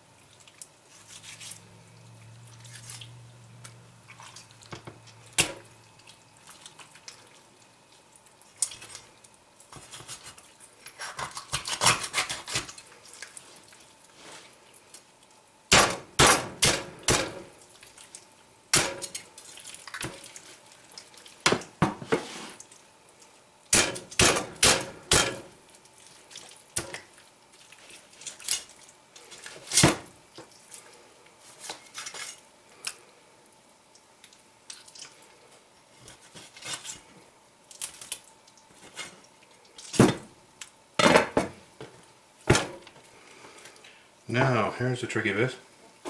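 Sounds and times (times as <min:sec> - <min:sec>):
soft handling of wet meat: 0:00.0 - 0:11.0, 0:12.7 - 0:15.6, 0:17.5 - 0:18.6, 0:19.2 - 0:21.4, 0:22.1 - 0:23.7, 0:25.5 - 0:40.9.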